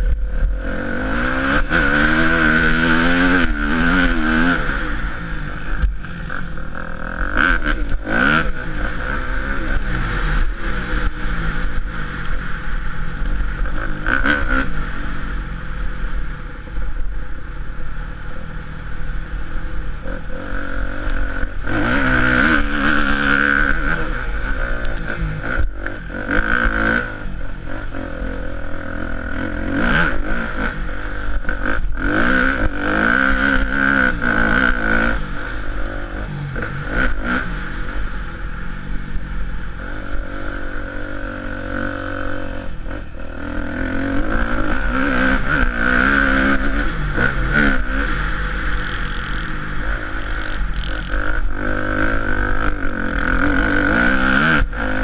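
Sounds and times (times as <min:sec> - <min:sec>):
motorbike engine revving: 0:00.0 - 0:55.0.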